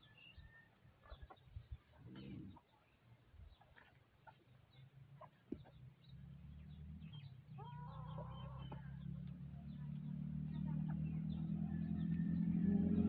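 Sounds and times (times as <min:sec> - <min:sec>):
bird chirps: 0:00.0 - 0:13.0
vehicle engine approaching: 0:05.6 - 0:13.0.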